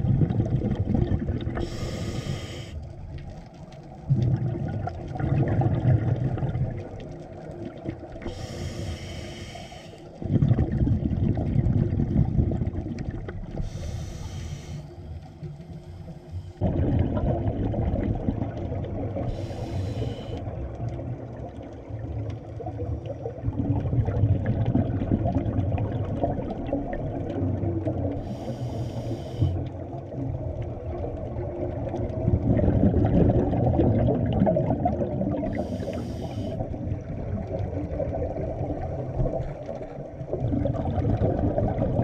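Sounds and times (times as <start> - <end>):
exhaled air bubbling: 0.0 - 42.0
regulator inhalation hiss: 1.6 - 2.9, 8.3 - 10.1, 13.6 - 15.1, 19.3 - 20.4, 28.2 - 29.6, 35.5 - 36.6.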